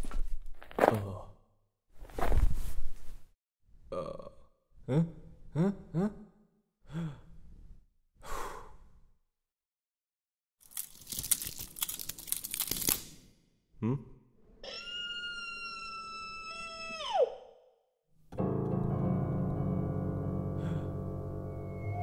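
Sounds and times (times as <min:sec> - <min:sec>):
sustained synthesizer chords: 0:18.4 - 0:22.0.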